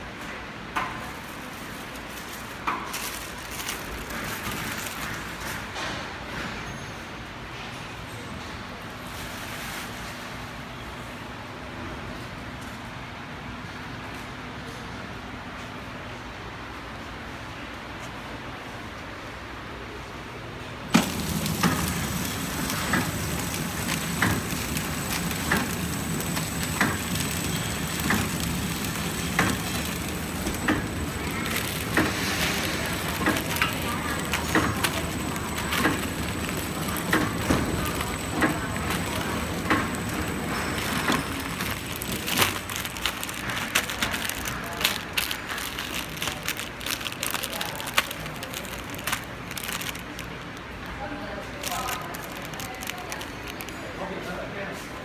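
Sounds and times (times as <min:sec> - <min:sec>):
plastic film crinkling: 0:01.2 - 0:05.6, 0:20.9 - 0:54.0
packing machine running: 0:01.4 - 0:05.7, 0:20.9 - 0:54.0
sharp sealing clicks: 0:21.0 - 0:50.9.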